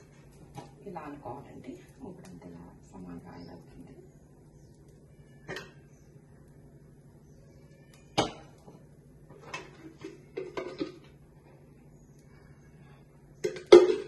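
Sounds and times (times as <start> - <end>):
pots and utensils clanking: 5.4 - 5.9, 8.1 - 11.2, 13.4 - 14.0.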